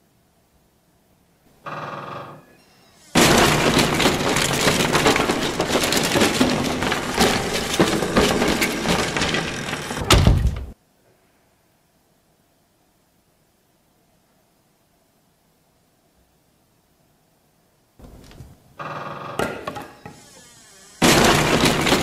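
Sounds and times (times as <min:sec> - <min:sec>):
wooden sticks clattering onto pile: 0:03.2 - 0:10.7, 0:21.0 - 0:22.0.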